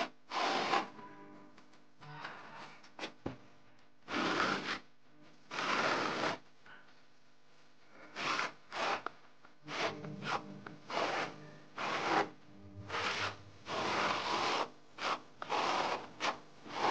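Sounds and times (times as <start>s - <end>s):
plastering tool scraping wall: 0.0s - 1.0s, 4.1s - 4.9s, 5.5s - 6.4s, 8.0s - 16.9s.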